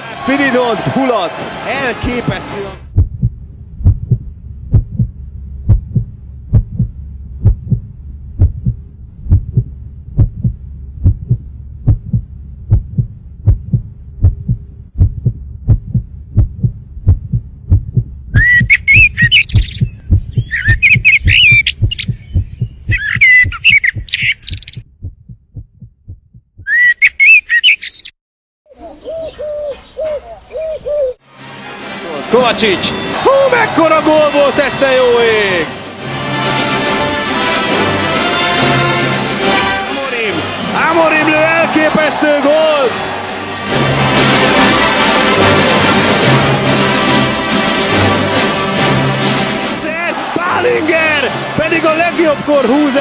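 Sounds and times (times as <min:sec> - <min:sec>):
slow heartbeat-like thumping: 0:02.3 - 0:26.8
warbling bird-like chirps: 0:18.4 - 0:24.8, 0:26.6 - 0:28.1.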